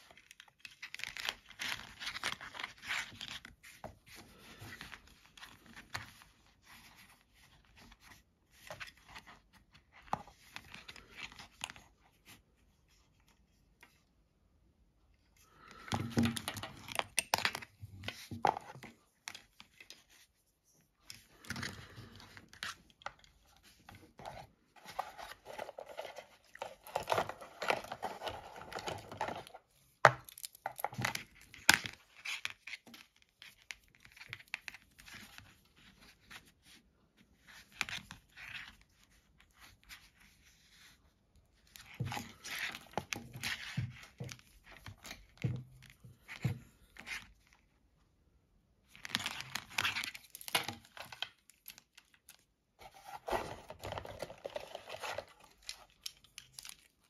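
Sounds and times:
cardboard and plastic packaging rustling: 15.6 - 36.8, 41.6 - 47.7, 48.8 - 57.0.

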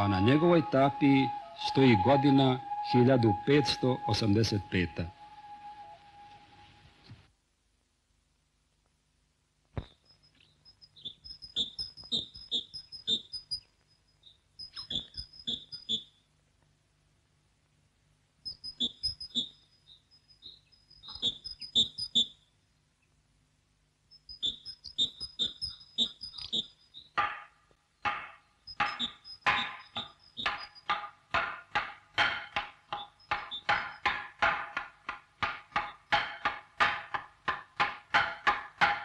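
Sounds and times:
mallet striking wooden board: 27.2 - 39.0.

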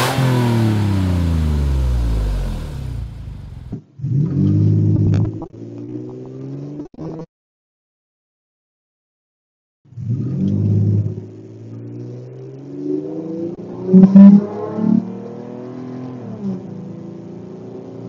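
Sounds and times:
car engine under full throttle: 0.0 - 6.3, 10.1 - 18.0.

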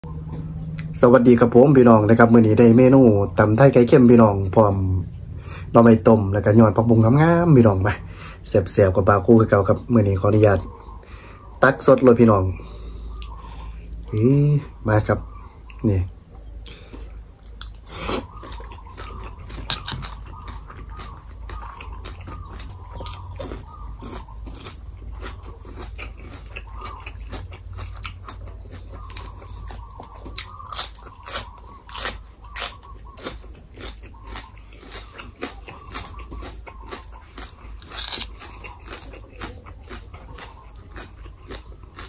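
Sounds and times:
person chewing crunchy food: 9.4 - 42.0.

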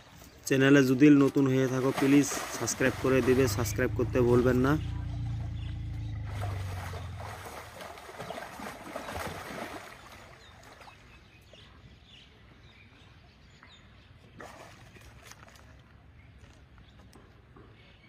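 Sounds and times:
elephant splashing in mud: 1.6 - 4.5, 5.4 - 11.0
low steady hum: 1.9 - 9.9.

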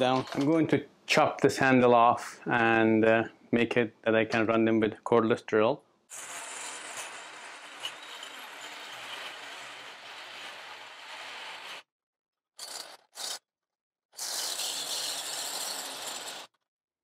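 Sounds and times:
reciprocating saw cutting metal: 14.2 - 16.5.

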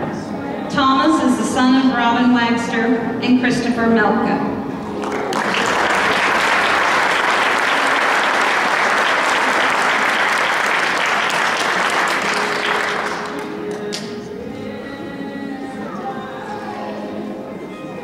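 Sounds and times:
background music: 0.0 - 18.0
audience applauding: 5.0 - 14.1.

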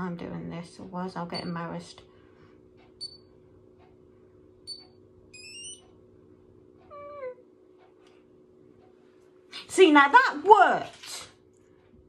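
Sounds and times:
hair styler beeps: 3.0 - 3.2, 4.7 - 5.8.

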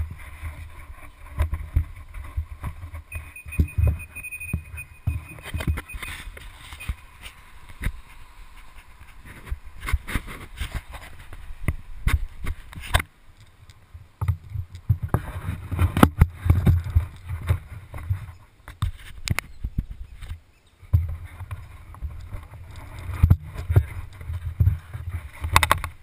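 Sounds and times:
knocks clicks and scrapes: 20.2 - 26.0.

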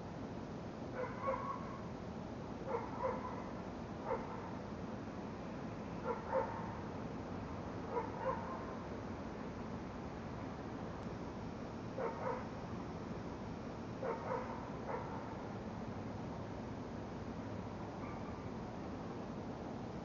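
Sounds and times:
dog barking: 1.0 - 1.8, 2.7 - 4.6, 6.0 - 6.8, 7.9 - 8.8, 12.0 - 12.5, 14.0 - 15.4, 18.0 - 18.4
steady hiss: 8.5 - 20.0.

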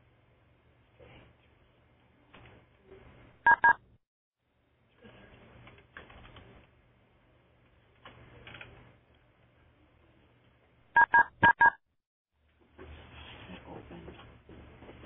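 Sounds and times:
telephone keypad tone beeps: 3.5 - 3.8, 11.0 - 11.8.

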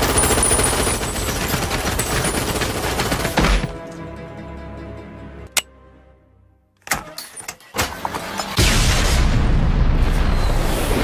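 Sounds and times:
submachine gun automatic fire: 0.0 - 3.4
music: 2.7 - 8.6.

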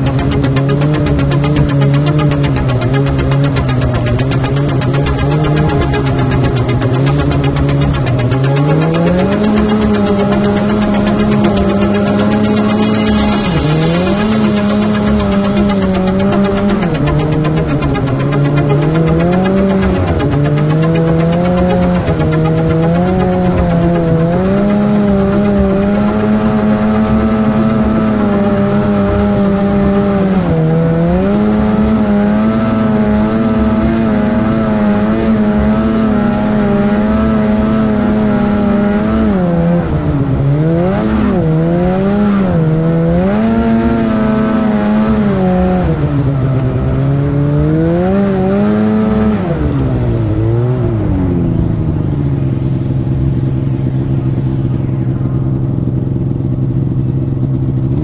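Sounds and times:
snowmobile engine revving: 0.0 - 58.0.

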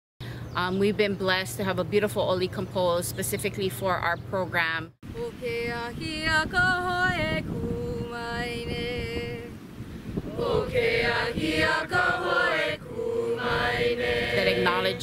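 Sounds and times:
group chanting in unison: 10.3 - 15.0.

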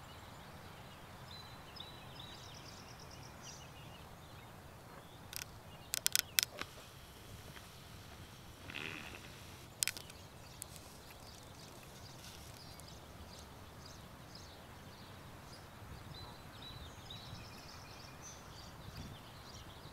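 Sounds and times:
small birds chirping faintly: 0.0 - 19.9
sharp click: 5.3 - 6.8
brief rustle: 5.3 - 13.0.

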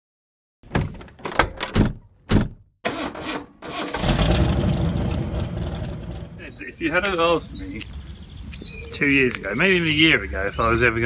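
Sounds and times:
engine cranking: 2.8 - 6.4
engine running low rumble: 4.0 - 10.4.

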